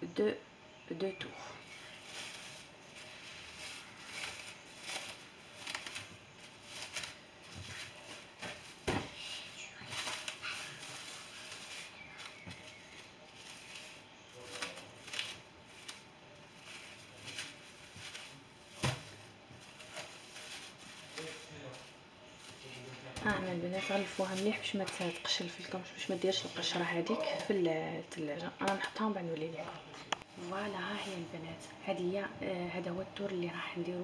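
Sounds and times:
cling film crinkling: 1.6s - 27.6s
sharp crackles of cling film: 1.6s - 27.6s.

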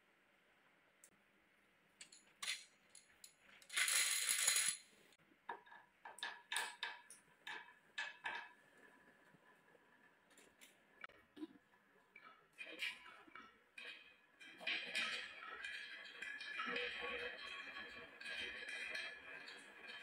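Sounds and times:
marbles clicking into wooden track: 3.6s - 4.8s
glass marbles clinking: 3.7s - 4.8s
marbles rattling in plastic bowl: 3.7s - 4.8s.

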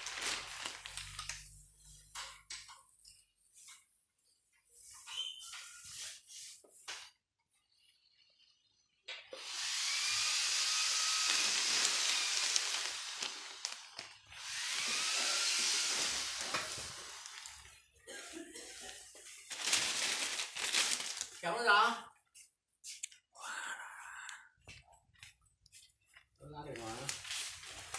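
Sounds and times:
plastic sheeting rustling: 0.0s - 2.1s, 11.1s - 14.2s, 15.9s - 22.0s, 25.8s - 27.9s.

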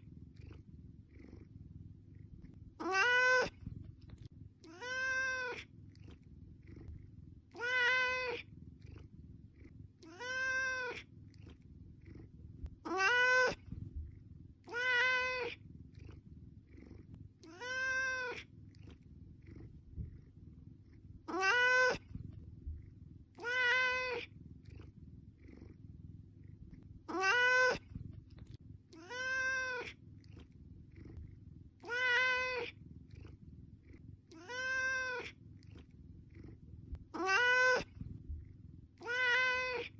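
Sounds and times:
cat meowing: 2.8s - 3.6s, 4.6s - 5.7s, 7.6s - 8.5s, 10.0s - 11.1s, 12.8s - 13.7s, 14.7s - 15.6s, 17.4s - 18.5s, 21.3s - 22.1s, 23.4s - 24.3s, 27.1s - 27.9s, 28.9s - 30.0s, 31.8s - 32.8s, 34.3s - 35.4s, 37.1s - 38.0s, 39.0s - 39.9s.

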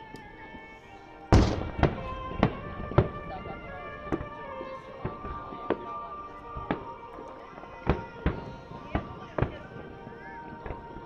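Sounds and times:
firework shells bursting: 1.3s - 5.9s.

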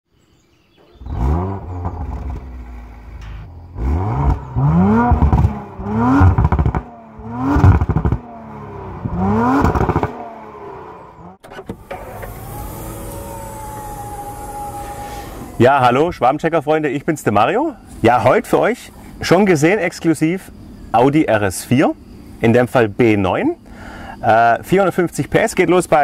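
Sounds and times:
exhaust crackles: 0.8s - 23.0s
car engine revving: 0.9s - 15.9s.

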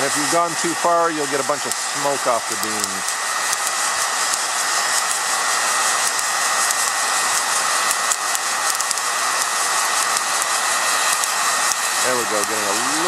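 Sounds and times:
coffee beans crackling and popping: 0.0s - 13.0s
heat gun blowing: 0.0s - 13.0s.

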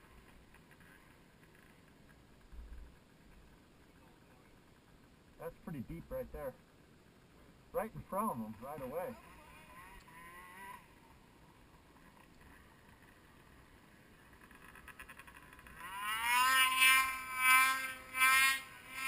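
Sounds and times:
snowmobile engine revving: 8.1s - 13.5s, 14.1s - 19.0s.

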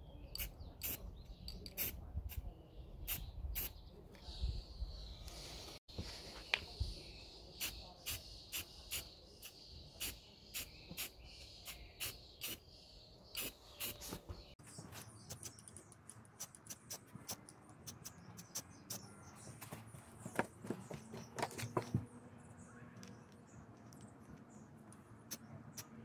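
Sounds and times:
spray paint can hissing: 11.7s - 12.6s, 13.4s - 14.2s.

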